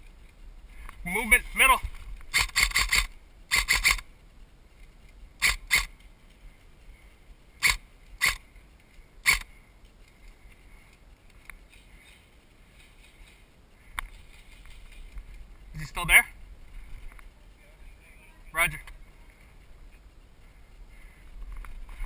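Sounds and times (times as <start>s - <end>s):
airsoft rifle shots: 2.3s - 4.0s, 5.4s - 5.9s, 7.6s - 8.4s, 9.2s - 9.5s.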